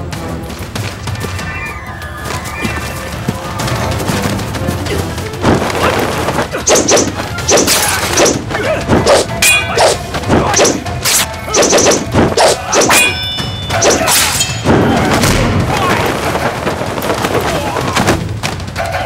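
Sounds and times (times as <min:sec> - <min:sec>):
background music: 0:00.0 - 0:19.0
fight whacks and hits: 0:05.4 - 0:15.8.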